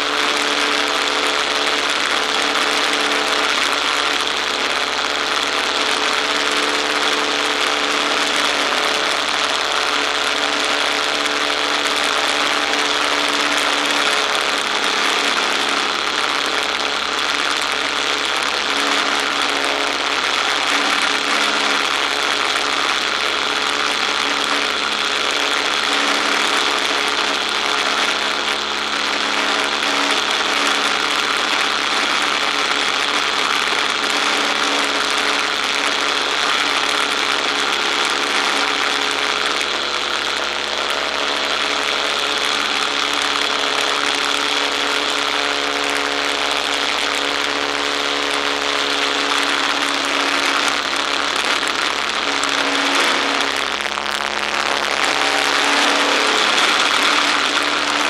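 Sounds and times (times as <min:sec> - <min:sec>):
propeller engine running: 0:00.0 - 0:58.0.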